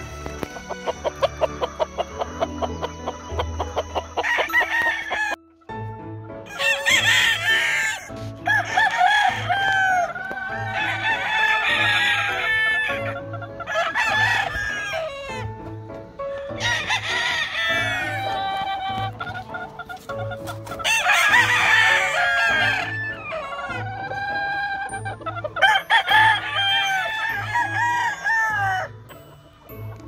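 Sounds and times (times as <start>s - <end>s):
roosters crowing: 0.0s - 5.4s, 6.4s - 29.3s
background music with a beat: 0.0s - 23.4s.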